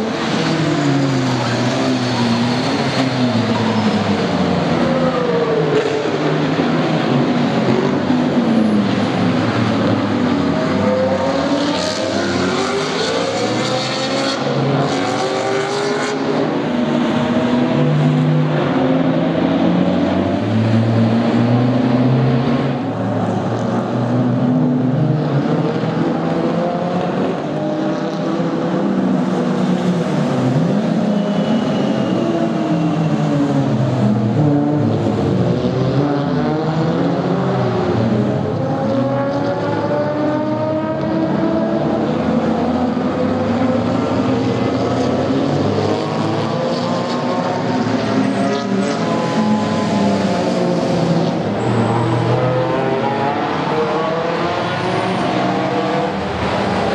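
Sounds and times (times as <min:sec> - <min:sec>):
race car engines: 0:00.0 - 0:56.9.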